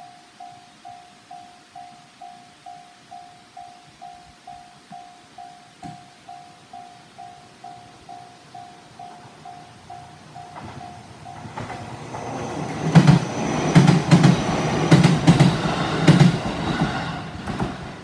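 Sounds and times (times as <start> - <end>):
level crossing warning bell: 0.0 - 13.8
train wheels knocking on rail joints: 10.2 - 18.0.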